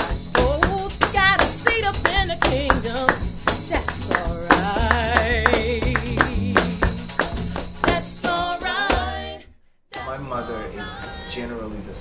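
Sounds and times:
plucked upright bass: 0.0s - 9.4s
rhythmic hand claps: 0.0s - 9.4s
man singing a spiritual: 10.0s - 12.0s.

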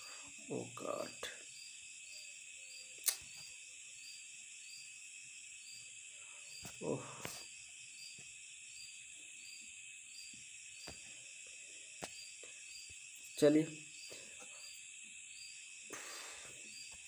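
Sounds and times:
crickets chirring: 0.0s - 17.0s
sharp click: 3.0s - 3.4s.

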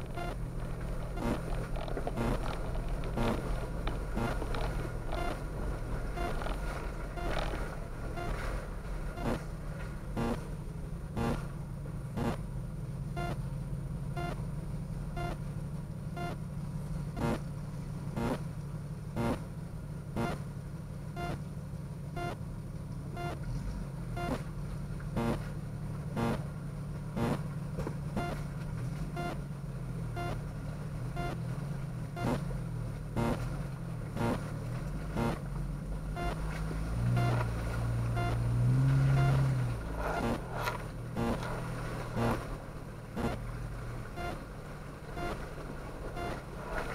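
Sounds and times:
car engine droning: 0.0s - 46.9s
sharp ticking: 1.2s - 3.4s, 4.1s - 5.4s, 6.2s - 6.6s, 7.2s - 7.6s, 10.2s - 10.4s, 11.2s - 11.4s, 12.2s - 12.4s, 15.2s - 15.4s, 17.2s - 17.4s, 18.2s - 18.4s, 19.2s - 19.4s, 20.2s - 20.4s, 24.2s - 24.4s, 25.2s - 25.4s, 26.2s - 26.4s, 27.2s - 27.4s, 32.2s - 32.4s, 33.2s - 33.4s, 42.2s - 42.4s, 43.2s - 43.4s.

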